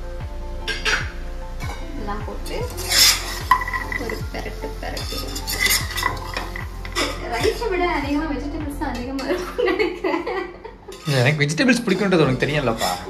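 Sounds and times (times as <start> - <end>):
ladle scraping metal pot: 0.6 - 1.9, 2.6 - 7.8, 10.9 - 13.0.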